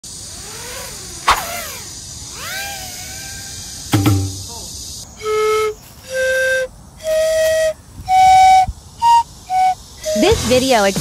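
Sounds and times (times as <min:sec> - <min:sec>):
flute-like wind instrument notes: 0:05.1 - 0:10.8.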